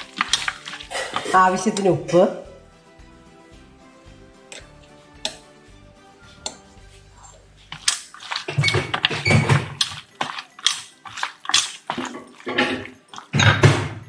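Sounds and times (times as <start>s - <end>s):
wet squelches of raw chicken: 0.0s - 1.4s, 6.9s - 13.3s.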